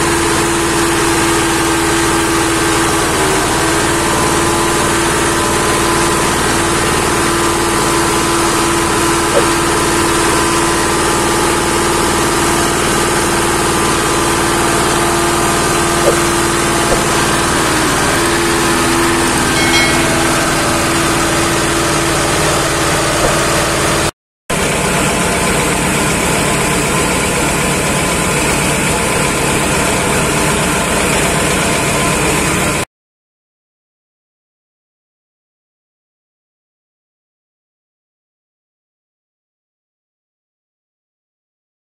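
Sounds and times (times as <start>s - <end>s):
stationary engine running: 0.1s - 32.8s.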